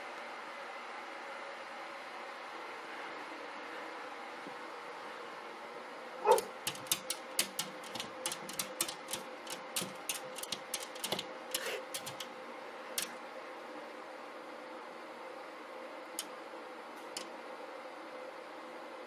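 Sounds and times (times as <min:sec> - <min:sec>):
dog paws tapping on glass: 0:06.3 - 0:12.3.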